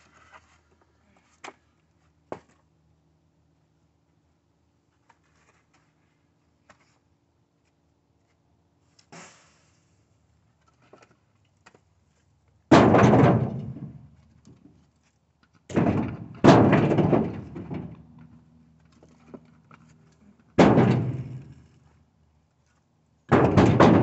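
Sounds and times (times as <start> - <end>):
logs thudding into truck bed: 12.7 - 14.2, 15.7 - 18.1, 20.5 - 21.6, 23.3 - 24.0.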